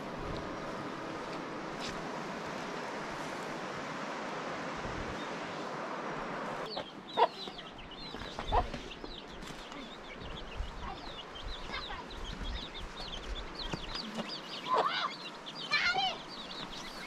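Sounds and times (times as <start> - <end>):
hen clucking: 6.7 - 9.3, 10.2 - 15.3
chicks peeping: 6.7 - 17.0.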